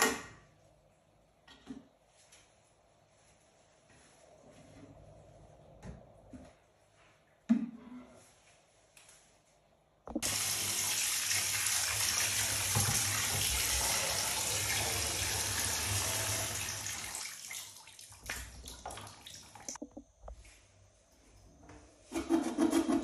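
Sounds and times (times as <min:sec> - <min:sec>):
shower spraying into bathtub: 0:10.2 - 0:19.8.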